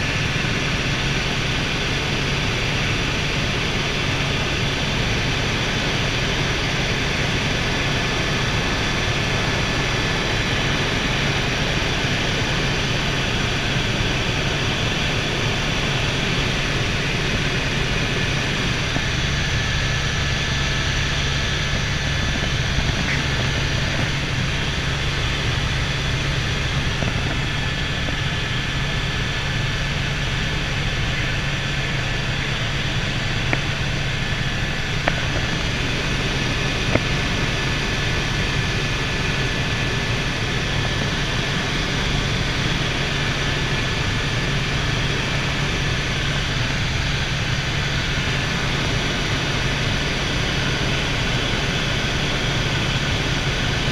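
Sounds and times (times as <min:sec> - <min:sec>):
helicopter engine and rotor hum: 0:00.0 - 0:53.9.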